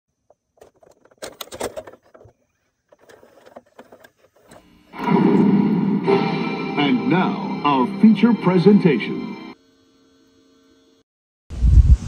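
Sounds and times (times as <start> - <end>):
loud intro music: 4.9 - 9.6.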